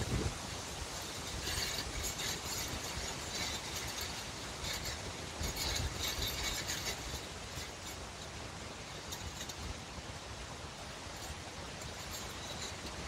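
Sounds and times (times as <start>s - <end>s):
wind low rumble: 0.0s - 4.1s
leaves rustling: 0.0s - 13.0s.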